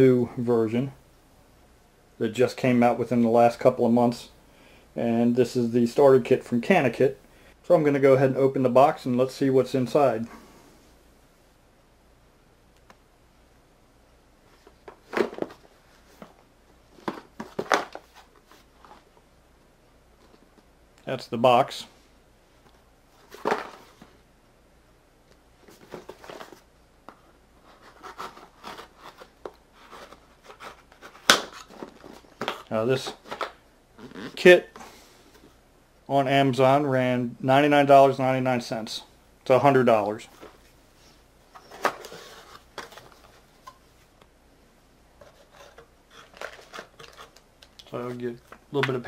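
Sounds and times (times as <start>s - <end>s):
cardboard and paper rustling: 14.5s - 19.1s, 23.2s - 24.2s, 25.6s - 34.4s, 40.2s - 43.7s, 45.2s - 49.0s.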